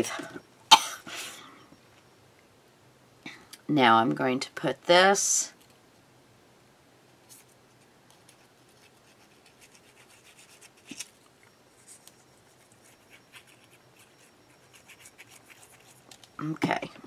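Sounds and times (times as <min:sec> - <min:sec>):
paper scratching and rubbing: 0:08.2 - 0:16.1.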